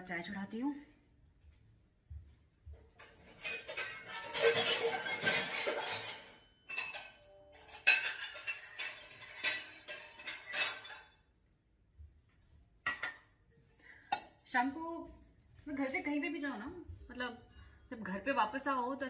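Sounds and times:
dishes and utensils clinking: 2.8s - 11.3s, 12.8s - 14.4s.

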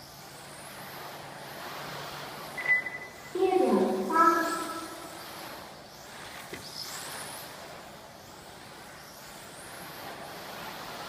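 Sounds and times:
steady hiss: 0.0s - 11.0s
rc car motor whine: 4.3s - 9.9s.

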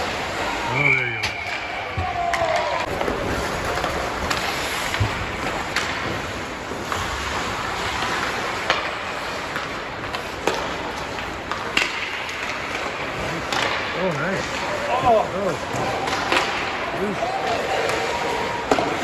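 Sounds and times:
arena noise: 0.0s - 19.0s
hockey sticks and puck clacking: 0.0s - 19.0s
skates scraping ice: 0.0s - 19.0s.

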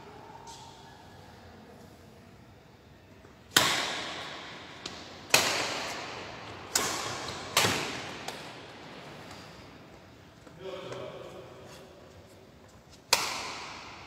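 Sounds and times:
badminton racket hitting shuttlecock: 4.8s - 8.5s, 13.1s - 14.0s.

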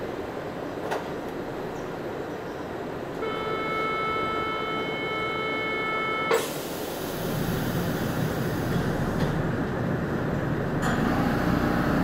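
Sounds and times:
train rumble: 0.0s - 12.0s
electronic door warning tone: 3.2s - 6.4s.

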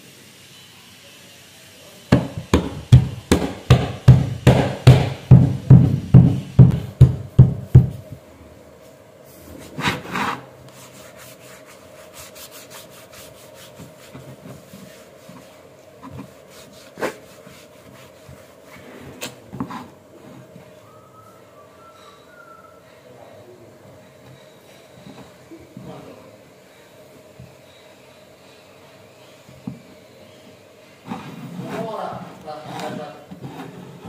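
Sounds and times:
hammer tapping wood: 2.1s - 8.0s
cloth rubbing over wood: 9.3s - 20.8s.

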